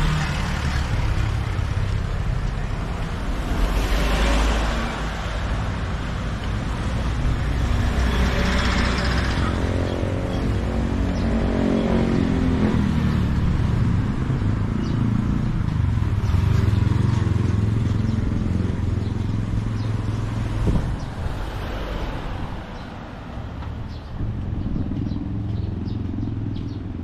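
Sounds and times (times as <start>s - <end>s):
bus engine passing: 0.0s - 14.2s.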